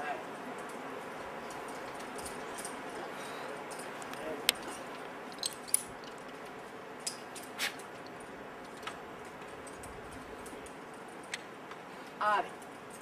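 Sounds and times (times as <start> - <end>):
steady background hiss: 0.0 - 13.0
metal gear clicks and clinks: 1.4 - 3.0, 3.7 - 6.4.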